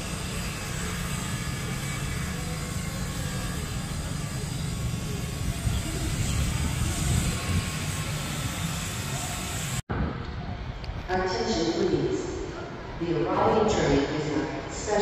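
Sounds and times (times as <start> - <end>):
diesel locomotive engine rumbling: 0.0 - 10.9.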